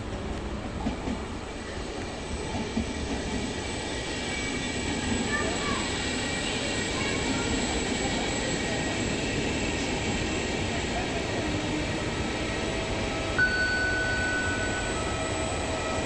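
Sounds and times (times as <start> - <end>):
electric trains rumbling hum: 0.0 - 16.0
steady high-pitched tone: 13.3 - 16.0.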